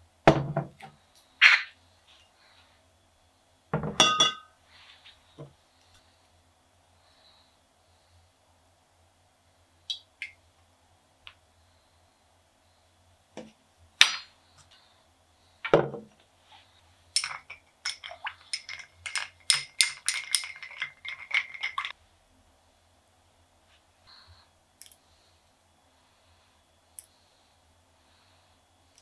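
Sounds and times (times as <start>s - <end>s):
glass and ice clinking: 3.8s - 4.5s, 17.2s - 21.9s.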